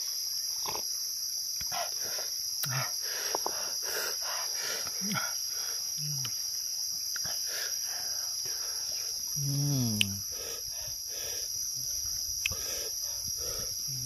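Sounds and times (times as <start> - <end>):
insects droning: 0.0 - 14.0
person humming mm: 6.0 - 6.4, 9.3 - 10.4.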